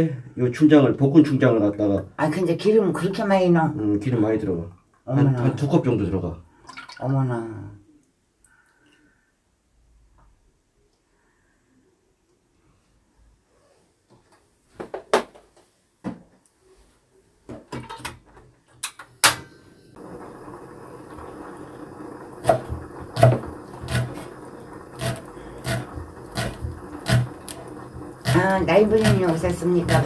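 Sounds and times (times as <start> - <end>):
knife chopping on wooden board: 23.2 - 24.2, 25.0 - 27.3, 28.2 - 30.0.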